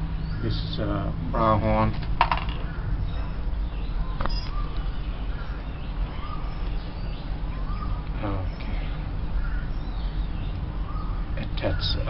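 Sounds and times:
bird calling faintly: 2.5 - 12.0.

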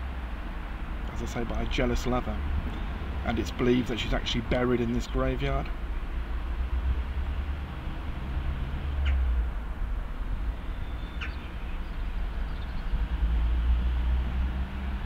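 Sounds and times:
bird chirps: 10.6 - 13.0.

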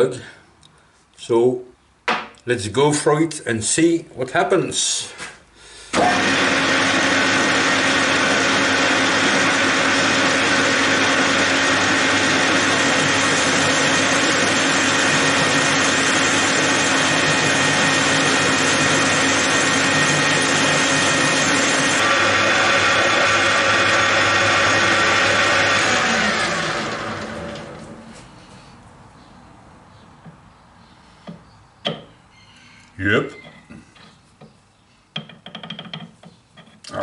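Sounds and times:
metal lathe droning: 6.0 - 26.6.

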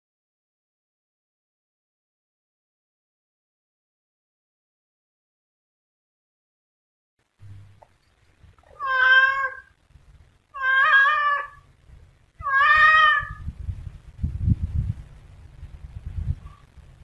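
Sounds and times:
low rumble: 7.4 - 8.8, 13.2 - 17.0
cat meowing: 8.7 - 9.7, 10.5 - 11.7, 12.4 - 13.4.

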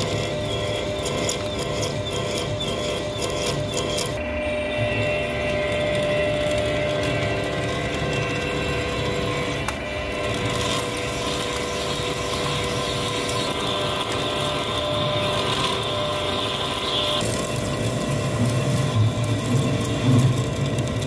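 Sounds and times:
cutting tool on steel rod: 0.0 - 4.2
lathe gear whine: 0.0 - 21.0.

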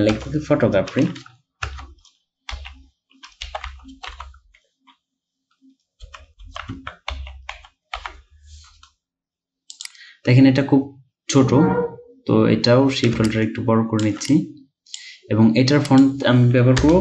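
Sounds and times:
typing on computer keyboard: 0.0 - 4.5, 6.0 - 8.2, 13.0 - 15.0, 15.7 - 17.0.

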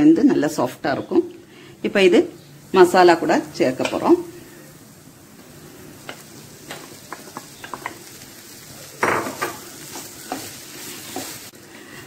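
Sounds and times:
food sizzling in a pan: 0.0 - 12.0
wooden spatula scraping a pan: 8.9 - 12.0.

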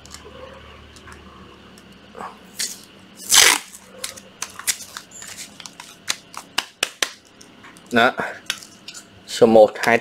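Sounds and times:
tape ripping off roll: 2.6 - 7.2.

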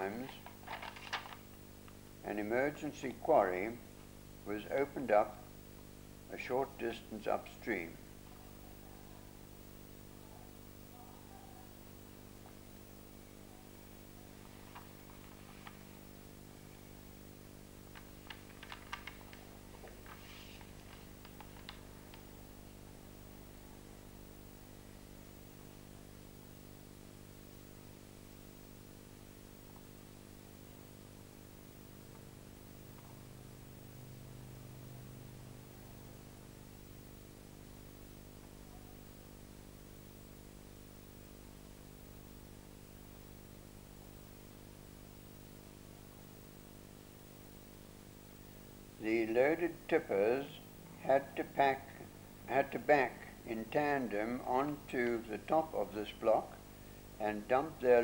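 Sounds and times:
faint electrical hum: 0.0 - 58.0
light hiss: 18.0 - 22.3.

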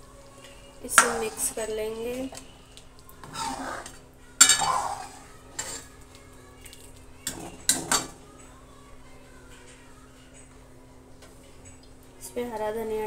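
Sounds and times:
ladle clinking against pan: 0.9 - 1.6, 3.2 - 5.8
liquid swishing: 2.4 - 6.0.

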